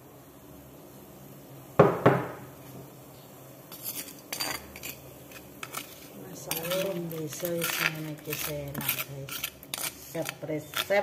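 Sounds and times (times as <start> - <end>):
water boiling in a pot: 0.0 - 11.0
metal spoon clanking on cookware: 6.5 - 11.0.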